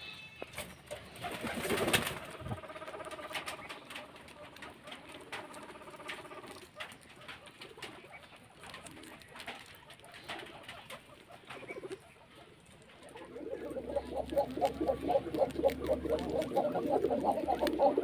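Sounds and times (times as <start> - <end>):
guinea pigs purring: 0.9 - 18.0
chewing clicks: 4.0 - 18.0.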